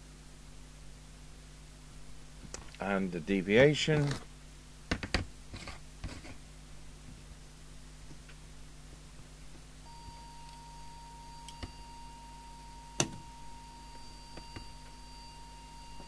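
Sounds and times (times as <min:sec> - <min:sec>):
steady test tone: 0:09.8 - 0:16.0.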